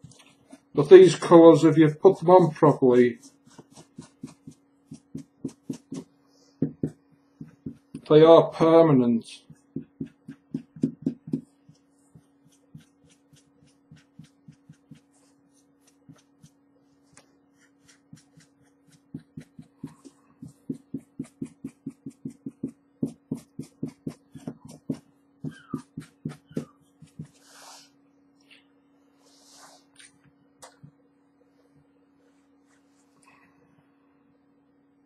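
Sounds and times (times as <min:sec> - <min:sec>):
steady low hum: 0:00.0 - 0:35.0
pen tip tapping on fabric: 0:09.8 - 0:11.4.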